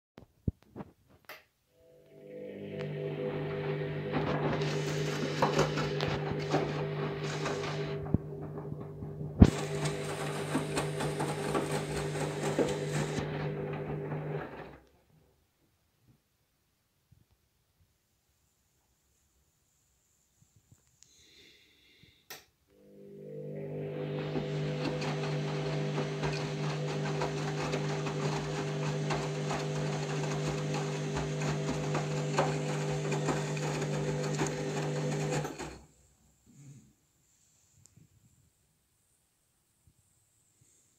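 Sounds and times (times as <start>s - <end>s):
washing machine motor hum: 1.8s - 14.8s, 22.7s - 35.9s.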